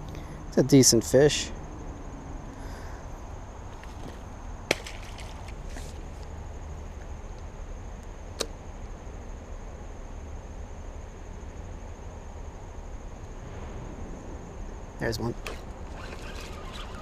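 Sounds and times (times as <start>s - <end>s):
fishing reel ticking: 15.4s - 17.0s.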